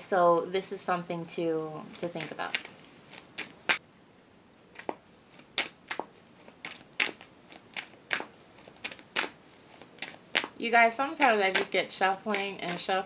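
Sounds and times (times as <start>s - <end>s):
cards being shuffled: 1.9s - 3.8s, 4.8s - 12.9s.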